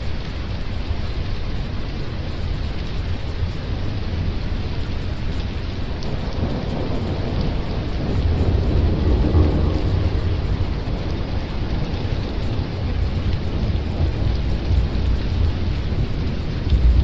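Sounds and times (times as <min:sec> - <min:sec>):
rain rushing: 0:00.0 - 0:17.0
thunder rumble: 0:05.9 - 0:17.0.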